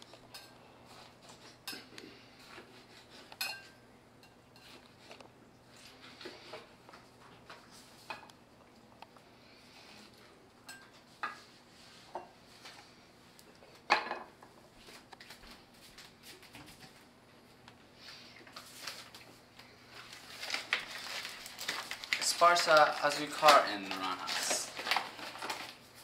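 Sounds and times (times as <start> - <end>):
bag of sugar crinkling: 18.4 - 26.0.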